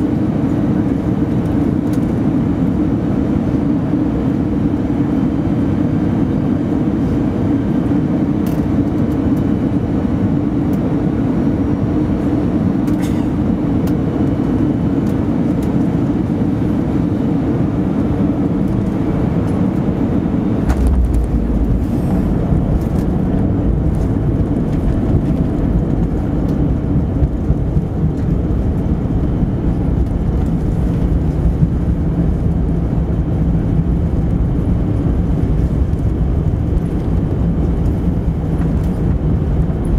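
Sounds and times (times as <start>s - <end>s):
jet engines and airflow rush: 0.0s - 39.9s
tyres rumbling on runway: 18.6s - 39.9s.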